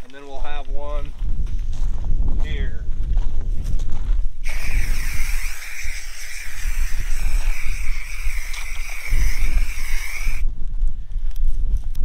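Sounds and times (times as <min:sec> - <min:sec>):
wind rumbling on microphone: 0:00.0 - 0:12.0
aerosol spray can hissing: 0:04.4 - 0:10.4.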